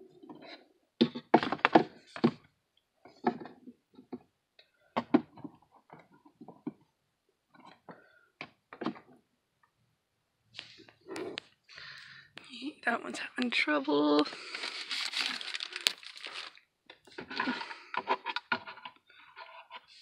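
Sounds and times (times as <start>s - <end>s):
small hard objects knocking: 14.2s - 18.7s.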